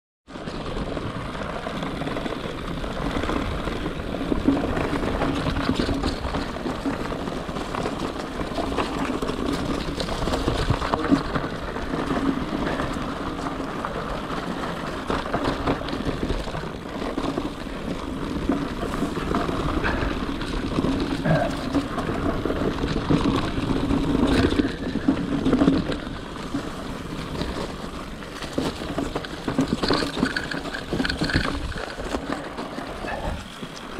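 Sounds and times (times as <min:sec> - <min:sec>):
bicycle tyre noise on dirt: 0:00.3 - 0:33.9
bike knocking and rattling: 0:00.3 - 0:33.9.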